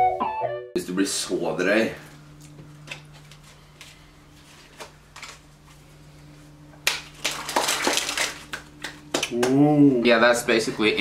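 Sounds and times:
low steady hum: 0.0s - 11.0s
playing cards snapping and rustling: 4.6s - 5.4s, 6.8s - 9.6s.

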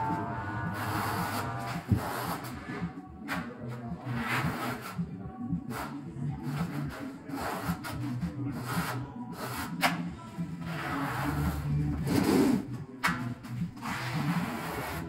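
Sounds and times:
trowel scraping mortar on concrete: 13.8s - 15.0s.

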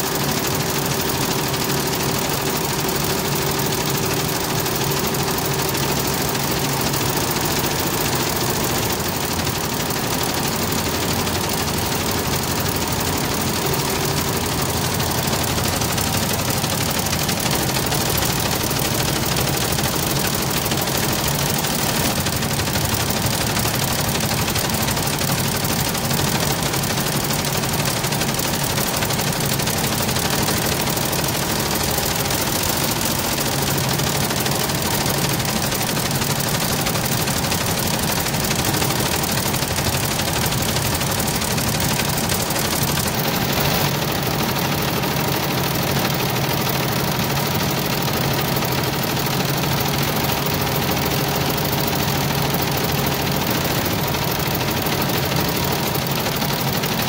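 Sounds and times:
embroidery machine clatter: 0.0s - 57.0s.

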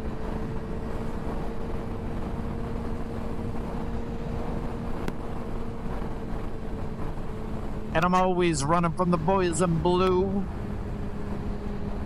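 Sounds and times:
motorcycle engine cruising: 0.0s - 12.0s
wind and road noise: 0.0s - 12.0s.

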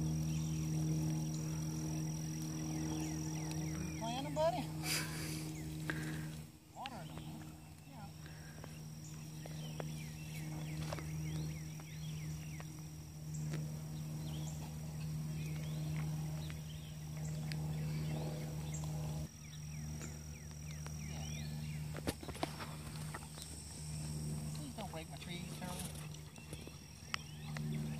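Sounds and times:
steady low hum: 0.0s - 27.9s
bird chirps: 6.8s - 22.5s.

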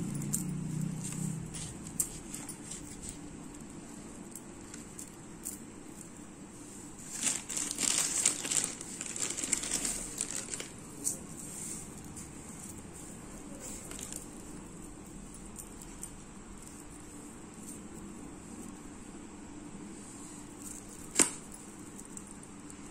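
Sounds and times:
plastic packaging crinkling: 7.0s - 11.3s, 13.6s - 14.6s.

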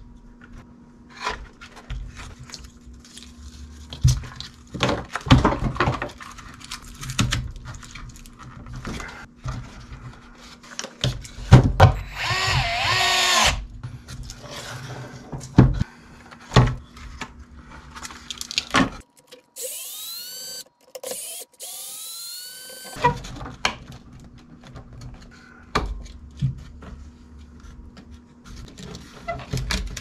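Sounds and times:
electric screwdriver driving screws: 12.0s - 13.6s, 19.6s - 23.0s.

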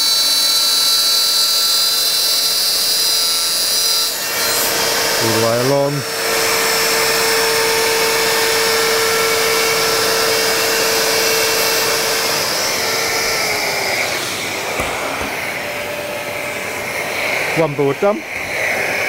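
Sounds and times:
router whining: 0.0s - 19.0s
dust extractor rushing air: 4.2s - 19.0s.

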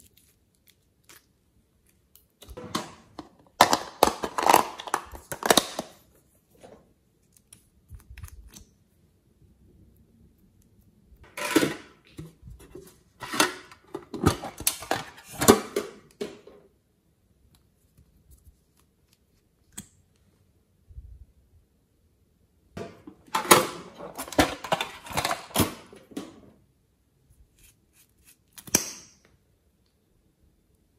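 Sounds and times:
plastic toy cases handled: 2.4s - 6.8s, 11.3s - 16.6s, 22.8s - 26.5s.

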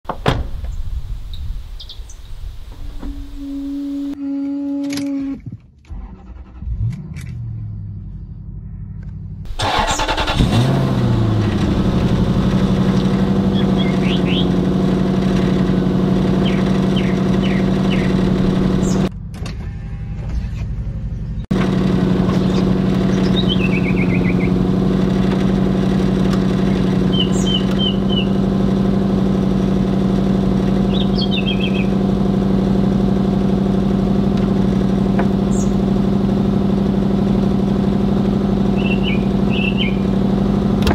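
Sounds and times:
car starter cranking: 5.8s - 7.4s, 9.5s - 13.5s
car engine idling: 6.0s - 19.4s, 20.7s - 40.9s.

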